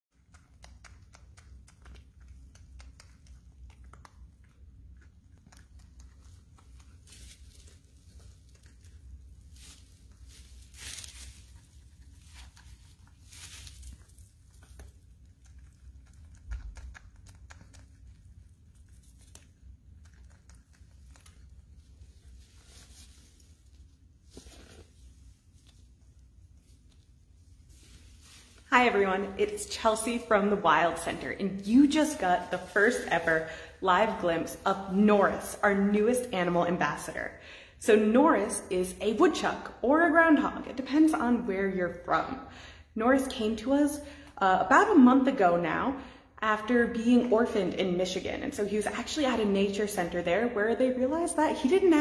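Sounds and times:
animal crunching greens: 0.1s - 35.5s
low steady hum: 0.1s - 52.0s
rustling: 0.3s - 34.6s.

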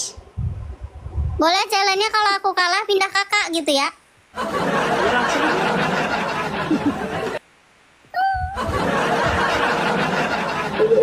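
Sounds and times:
laughter: 4.4s - 7.4s, 8.5s - 11.0s.

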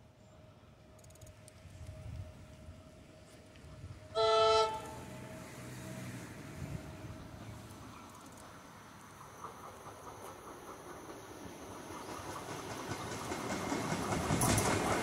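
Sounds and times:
train rumble: 0.0s - 15.0s
train whistle: 4.1s - 5.3s.

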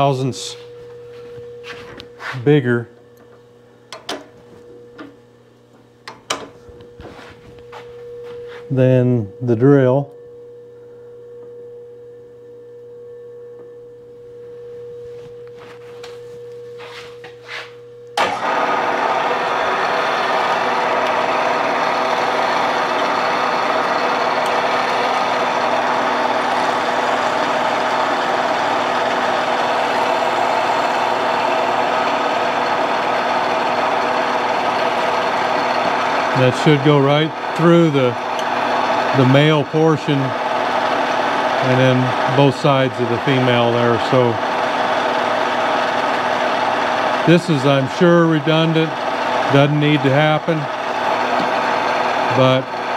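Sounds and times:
milling machine drilling: 18.2s - 52.9s.

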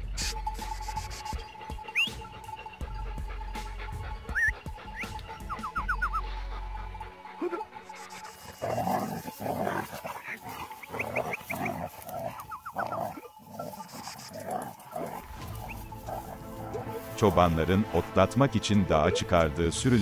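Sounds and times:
wolves snarling and growling: 7.4s - 17.3s
wolf yelps: 9.2s - 17.0s.

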